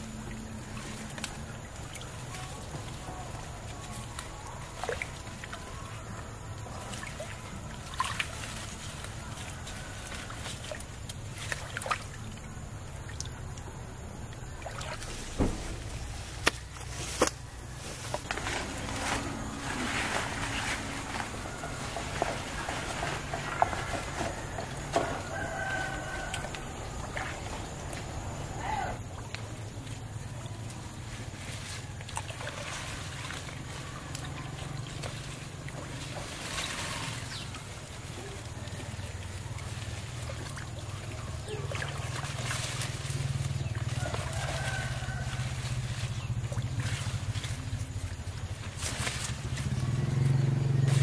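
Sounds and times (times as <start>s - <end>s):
steady low hum: 0.0s - 25.3s
faint water splashes: 0.0s - 51.0s
fish trap knocking and rustling: 15.3s - 17.4s
small engine droning: 15.8s - 27.6s, 29.4s - 51.0s
rooster crowing: 24.9s - 26.9s, 43.6s - 46.0s.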